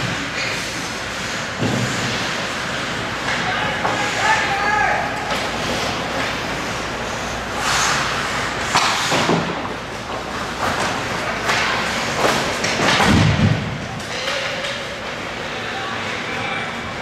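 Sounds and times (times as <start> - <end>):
hockey sticks and puck knocking: 8.6 - 15.2.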